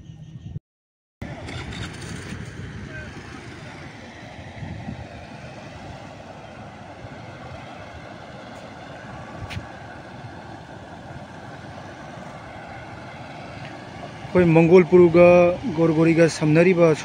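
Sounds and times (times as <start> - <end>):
vehicle rumble and hiss: 1.2 - 17.0.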